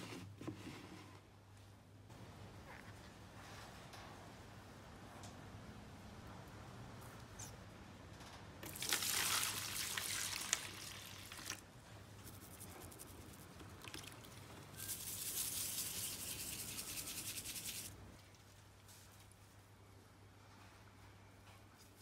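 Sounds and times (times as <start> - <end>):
rapid scrubbing strokes: 14.8 - 17.9.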